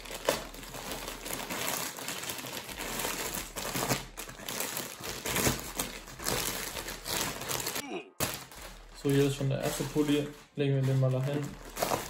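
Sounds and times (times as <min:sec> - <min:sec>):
plastic bag crinkling and rustling: 0:00.0 - 0:12.0.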